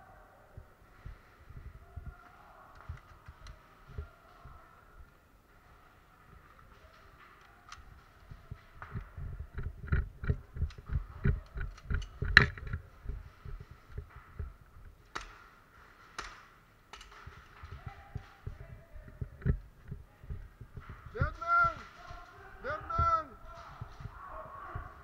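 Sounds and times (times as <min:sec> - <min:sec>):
sharp cracks: 0:05.5 - 0:25.0.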